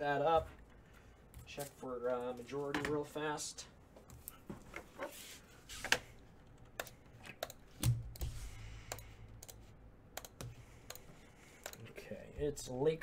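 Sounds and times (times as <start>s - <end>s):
computer keyboard typing: 6.6s - 8.3s, 8.9s - 9.6s, 10.2s - 11.8s.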